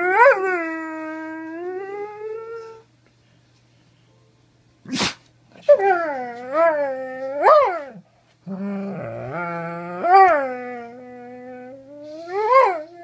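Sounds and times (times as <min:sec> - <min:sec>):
dog howling and whining: 0:00.0 - 0:02.9, 0:05.6 - 0:13.0.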